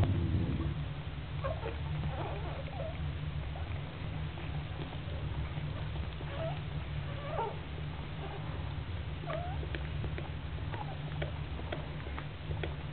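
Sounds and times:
steady low hum: 0:00.0 - 0:12.9
puppies squeaking: 0:01.4 - 0:03.0, 0:06.2 - 0:07.6.

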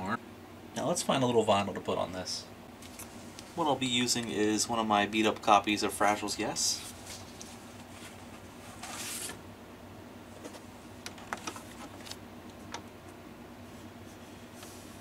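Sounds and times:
vinyl record rustle: 0:02.8 - 0:09.5, 0:10.3 - 0:15.0.

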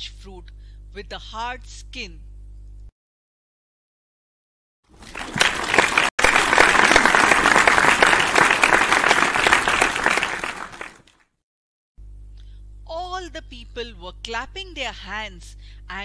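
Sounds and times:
crowd applauding: 0:04.9 - 0:11.2.

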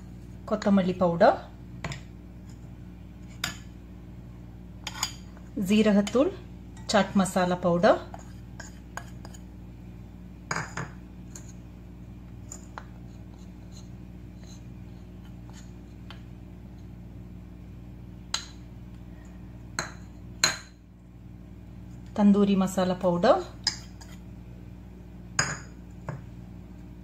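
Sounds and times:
steady low hum: 0:00.0 - 0:27.0
ceramic clinking against glass bowl: 0:25.4 - 0:26.2.

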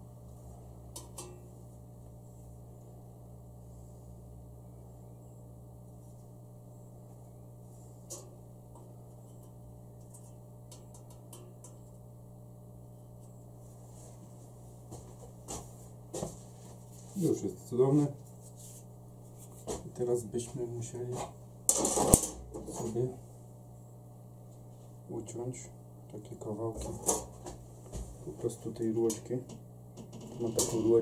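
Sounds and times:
steady low hum: 0:00.0 - 0:31.0
steel wire tapping metal grill: 0:00.9 - 0:01.5, 0:09.2 - 0:11.9.

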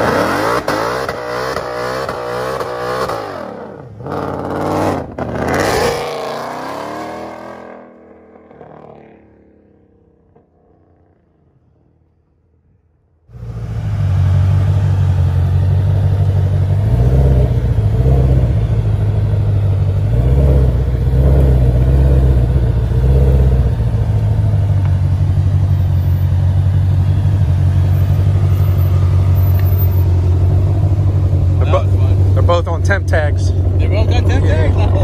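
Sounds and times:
car engine idling rumble: 0:07.8 - 0:35.0.

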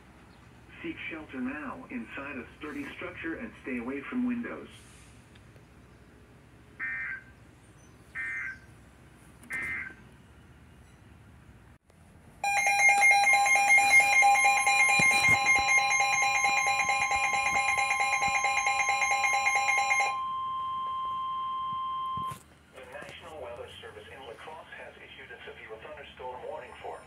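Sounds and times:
harsh two-tone attention signal: 0:12.4 - 0:22.4
steady single-pitch alert tone: 0:12.4 - 0:22.4.

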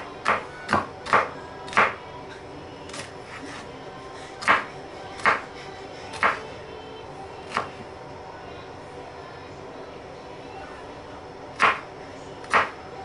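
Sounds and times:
knife chopping on wooden board: 0:00.2 - 0:02.0, 0:04.4 - 0:05.4, 0:06.2 - 0:06.4, 0:11.6 - 0:11.8, 0:12.5 - 0:12.7.

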